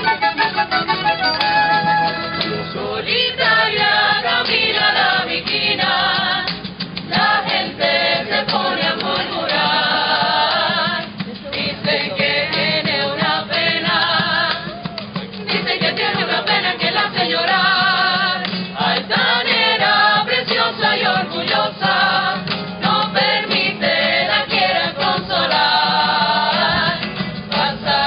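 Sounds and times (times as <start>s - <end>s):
guitars strumming: 0.0s - 28.0s
chorus singing with vibrato: 1.7s - 14.8s, 15.5s - 28.0s.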